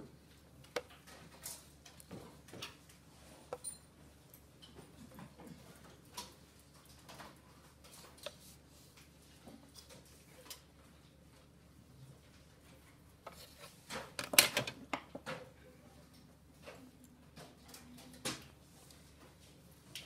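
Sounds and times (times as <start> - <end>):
drawing instruments clicking and rattling: 13.3 - 15.4.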